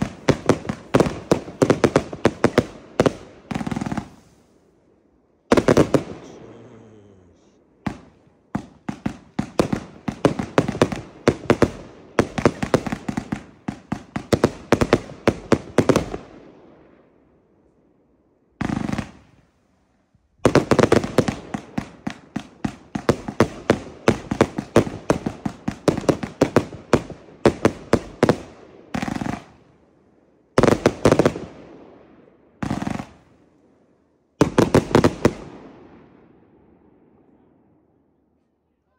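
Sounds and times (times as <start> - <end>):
firework cakes firing: 0.0 - 4.7, 5.4 - 16.5, 18.6 - 19.6, 20.4 - 29.8, 30.6 - 31.8, 32.6 - 33.6, 34.4 - 36.2.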